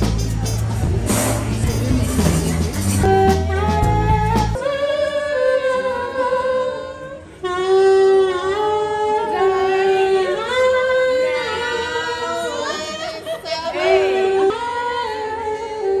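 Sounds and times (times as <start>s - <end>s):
beat and bass: 0.0s - 4.6s
person singing long gliding notes: 3.1s - 12.1s.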